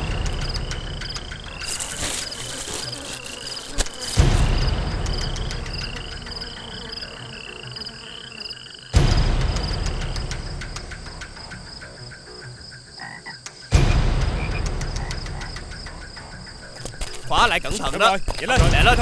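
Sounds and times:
frogs chirping: 0.0 - 19.0
deep booming hit: 13.8 - 15.0.

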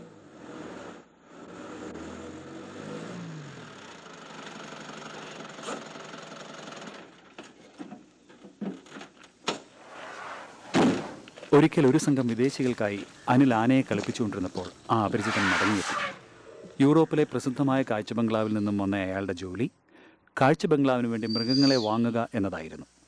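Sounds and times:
van engine running: 0.0 - 7.2.

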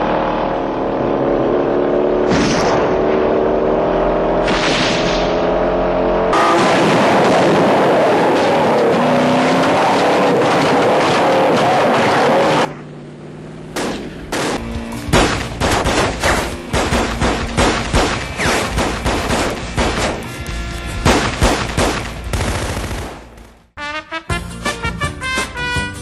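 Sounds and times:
heavy gunfire: 13.8 - 20.2, 21.0 - 23.4
background music: 23.8 - 26.0.

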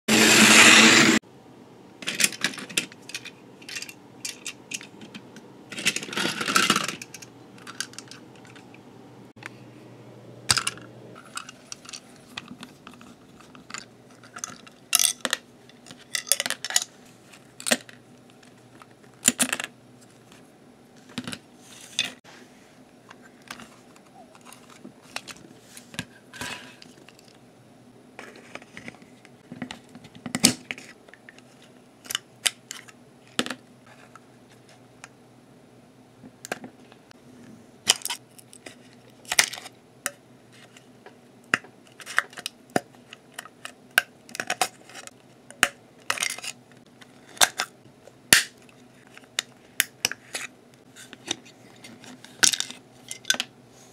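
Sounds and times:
loud noise: 0.1 - 1.2.

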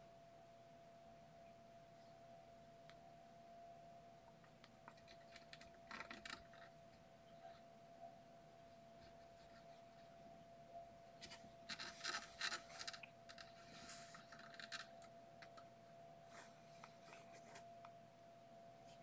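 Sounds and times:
faint steady tone: 0.0 - 19.0
kittens scratching and rustling: 4.4 - 7.7, 8.6 - 10.3, 11.1 - 15.7, 16.3 - 17.9.

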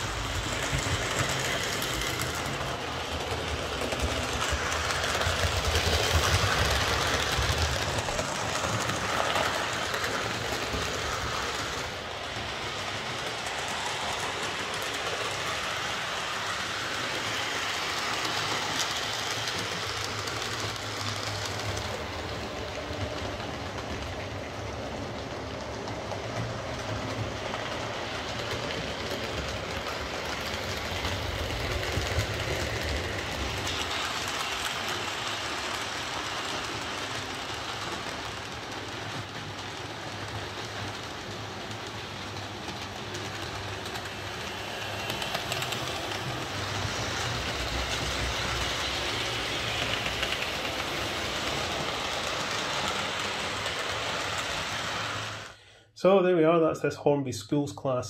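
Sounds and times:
model train running on track: 0.0 - 56.2.

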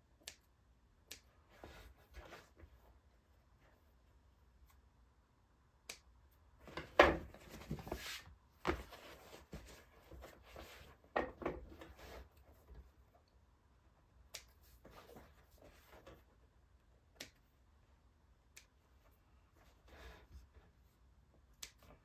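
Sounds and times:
scissors snipping threads: 17.2 - 17.4.

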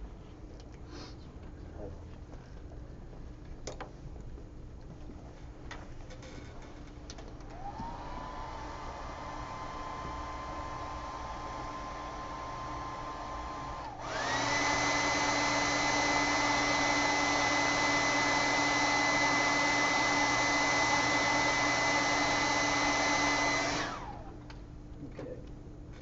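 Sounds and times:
hair dryer blowing: 7.4 - 24.4.

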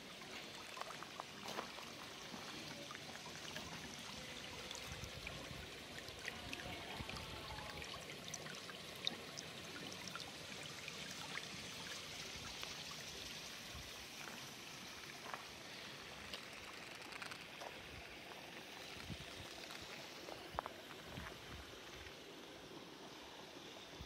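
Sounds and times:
stream babbling over stones: 0.0 - 23.8.

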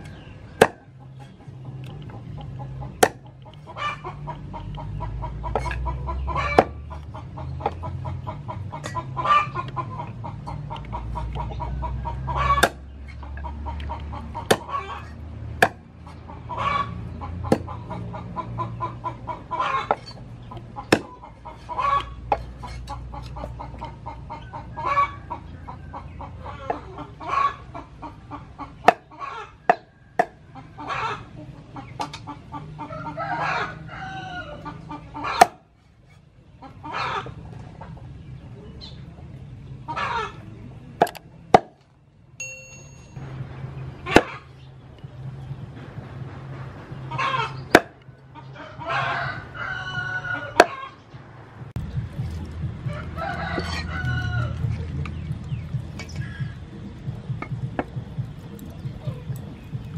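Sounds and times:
chickens clucking: 0.0 - 42.2, 43.4 - 59.9
cleaver chopping on wooden board: 0.6 - 0.9, 3.0 - 3.3, 6.6 - 6.8, 12.6 - 12.9, 14.4 - 14.7, 15.6 - 15.9, 17.5 - 17.7, 20.9 - 21.2, 41.0 - 41.8, 47.7 - 48.0.

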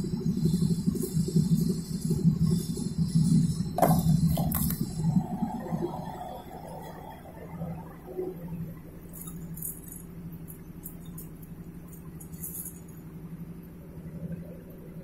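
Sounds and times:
low hum: 0.0 - 15.0
metal rods clinking in tin: 9.1 - 13.0.

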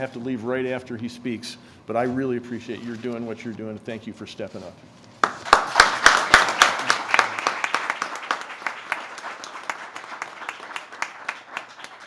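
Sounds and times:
small group applauding: 5.2 - 12.0.

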